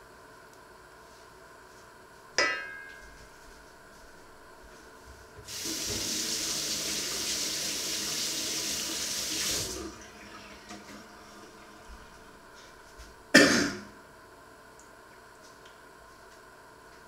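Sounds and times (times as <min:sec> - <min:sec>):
tap running into sink: 0:05.5 - 0:06.3.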